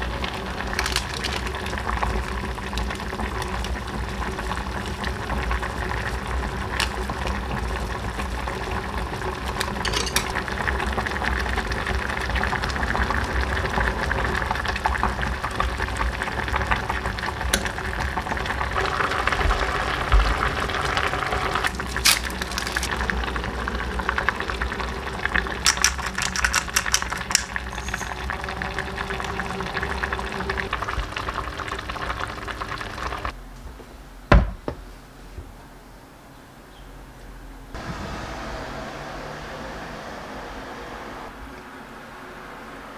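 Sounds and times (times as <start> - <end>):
stew boiling: 0.0 - 33.4
sharp clicks: 25.7 - 27.6.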